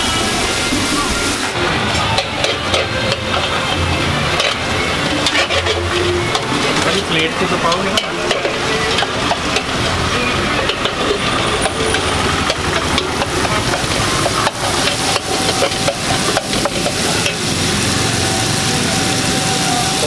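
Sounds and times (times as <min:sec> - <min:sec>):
food sizzling in metal pan: 0:00.0 - 0:20.0
street traffic: 0:00.0 - 0:20.0
spatula scraping metal pan: 0:01.8 - 0:17.5.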